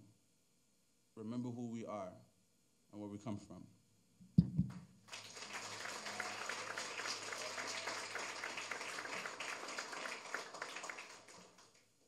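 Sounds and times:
audience applauding: 5.1s - 11.9s.

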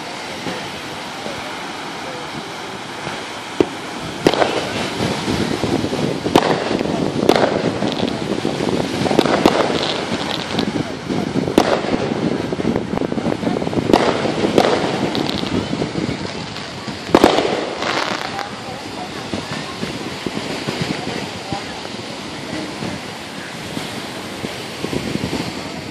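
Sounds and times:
firework cracks: 0.0s - 25.9s
steady hiss: 0.0s - 25.9s.

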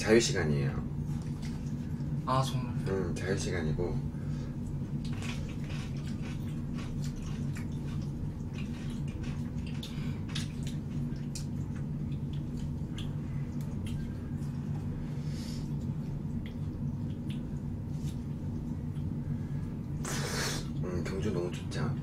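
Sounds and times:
steady low hum: 0.0s - 22.0s
wet chewing and slurping: 4.6s - 21.7s.

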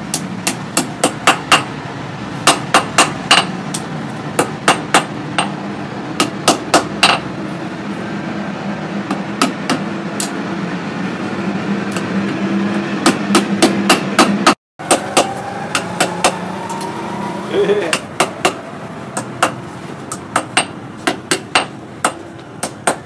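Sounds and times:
hammer striking steel on anvil: 13.0s - 16.9s, 17.9s - 18.6s.

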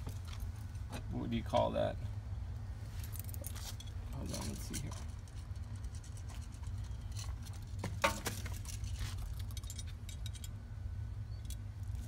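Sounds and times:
steady low hum: 0.0s - 12.0s
small clicks and rattles of parts: 3.0s - 10.6s.

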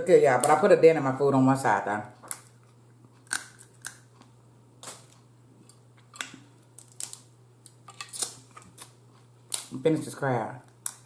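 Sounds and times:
crab shell cracking: 2.2s - 9.8s, 10.6s - 11.0s.

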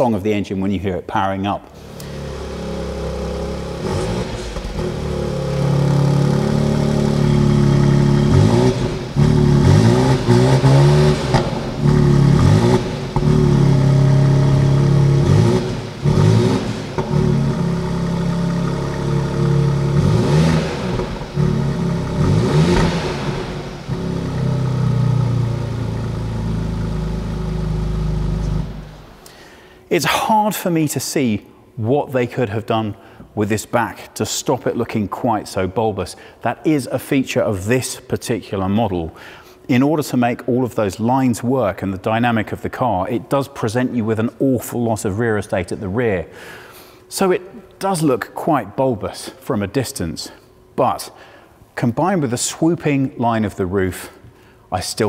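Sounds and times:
car engine revving: 1.8s - 29.2s.

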